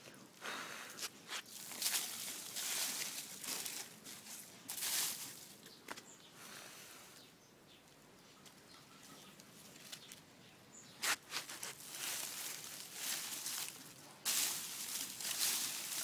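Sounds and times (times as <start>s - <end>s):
faint rustling and crunching: 1.0s - 6.2s, 7.8s - 16.0s
sharp scuffs: 11.0s - 12.6s.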